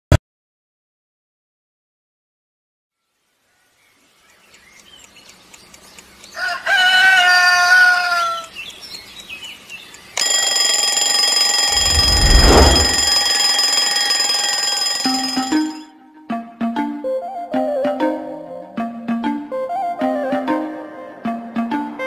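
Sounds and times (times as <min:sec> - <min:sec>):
rooster crowing: 0:06.4 - 0:08.5.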